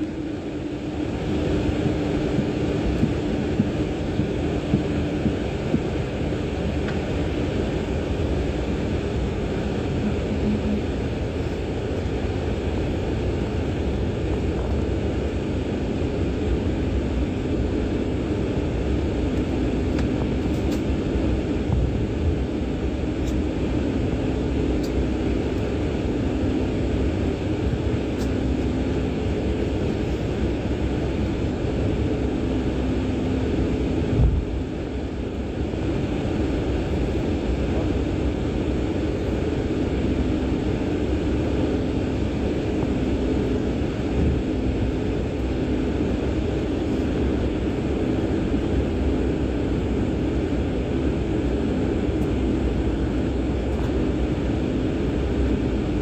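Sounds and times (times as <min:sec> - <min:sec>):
aircraft cabin noise: 0:00.0 - 0:56.0
jet engine hum: 0:00.0 - 0:56.0.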